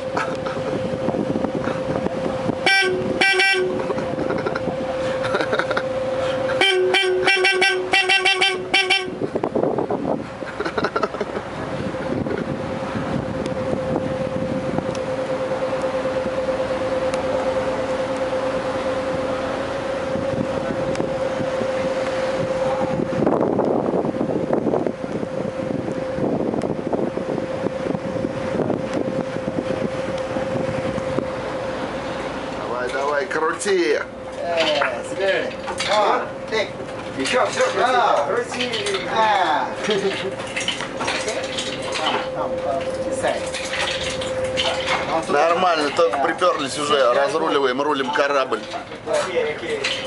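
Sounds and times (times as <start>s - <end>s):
boat horn toots: 0.0s - 9.4s, 13.2s - 23.3s
wind buffeting microphone: 0.2s - 3.2s, 9.1s - 10.6s, 11.4s - 15.1s, 20.0s - 32.0s
steady hum: 11.1s - 50.0s.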